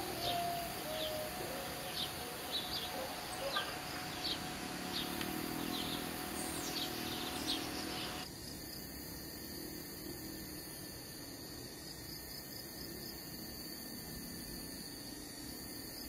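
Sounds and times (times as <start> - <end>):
birds chirping: 0.0 - 8.2
steady high hiss: 0.0 - 16.0.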